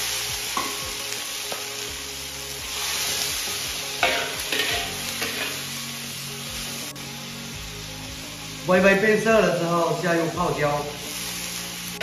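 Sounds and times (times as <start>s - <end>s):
food sizzling in oil: 0.0s - 12.0s
metal spatula scraping wok: 2.7s - 5.7s.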